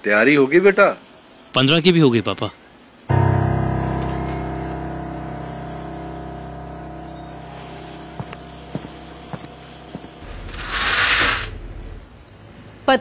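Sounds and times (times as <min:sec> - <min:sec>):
deep sustained chord: 0:03.1 - 0:10.9.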